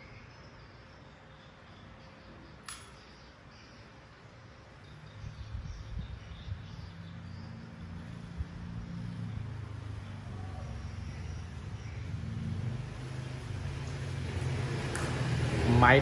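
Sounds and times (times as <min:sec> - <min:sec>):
small metallic clicks: 0:02.6 - 0:03.2.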